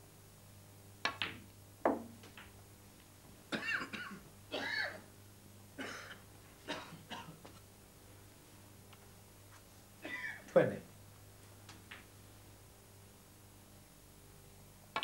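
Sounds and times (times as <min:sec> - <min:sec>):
snooker balls clicking: 0:01.0 - 0:02.6, 0:11.6 - 0:12.1.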